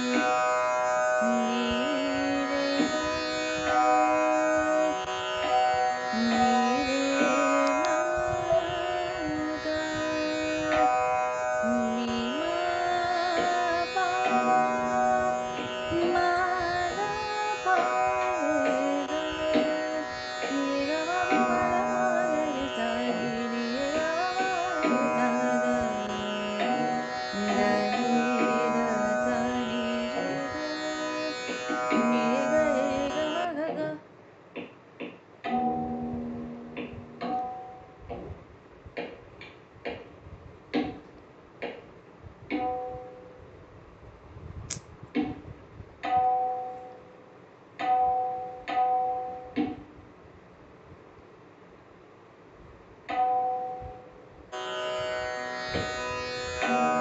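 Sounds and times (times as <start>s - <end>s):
steady drone: 0.0s - 33.5s, 35.6s - 37.3s
gliding melody: 0.0s - 33.6s, 35.5s - 37.7s
tabla: 0.0s - 34.0s, 34.6s - 38.4s, 40.8s - 41.0s, 54.0s - 57.0s.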